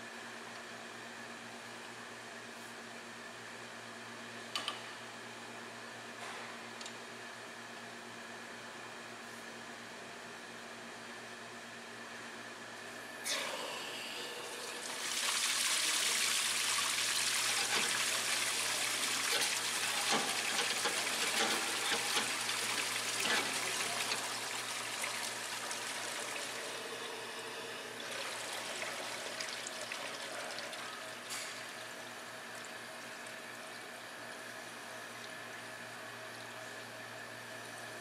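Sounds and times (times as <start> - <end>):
fluid gushing into tank: 14.5 - 26.9, 27.9 - 31.2.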